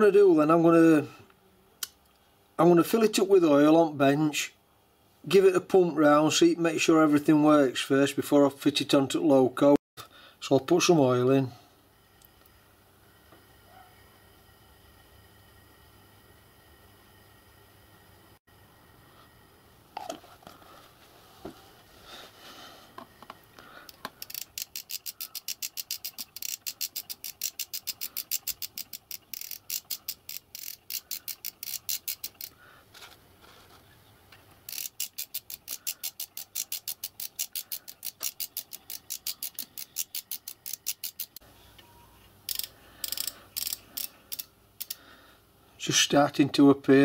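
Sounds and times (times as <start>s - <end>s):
hand-cranked lubricator clicking: 23.9s - 32.6s, 34.7s - 41.4s, 42.5s - 45.0s.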